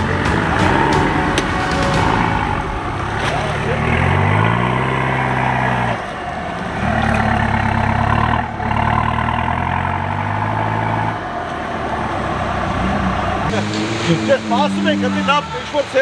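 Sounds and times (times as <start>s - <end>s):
off-road engine revving in mud: 0.0s - 16.0s.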